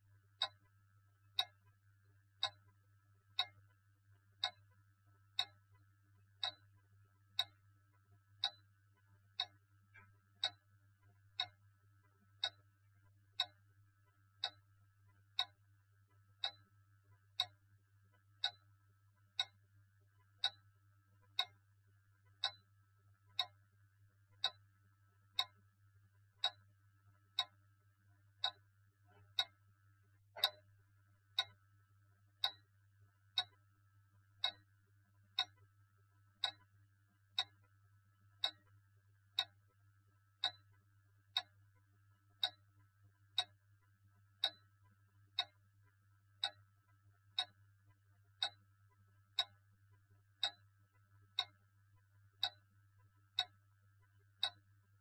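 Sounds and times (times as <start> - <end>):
low steady hum: 0.0 - 55.0
clock ticking: 0.4 - 1.8, 2.4 - 17.6, 18.2 - 21.6, 22.2 - 23.7, 24.3 - 24.7, 25.3 - 25.6, 26.3 - 29.7, 30.3 - 30.7, 31.3 - 31.7, 32.4 - 32.7, 33.3 - 34.7, 35.3 - 36.7, 37.3 - 38.8, 39.4 - 39.6, 40.3 - 41.6, 42.3 - 43.6, 44.3 - 49.7, 50.4 - 54.7.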